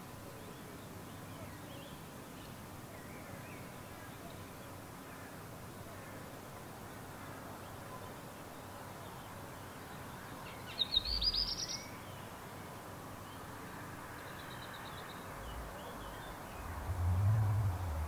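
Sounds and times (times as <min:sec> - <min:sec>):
background hiss: 0:00.0 - 0:18.0
bird song rising notes: 0:15.4 - 0:18.0.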